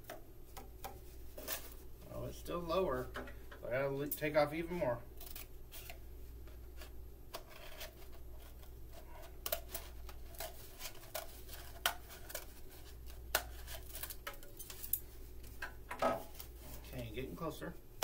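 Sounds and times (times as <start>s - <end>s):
scissors cutting cardboard tube: 6.8s - 14.5s.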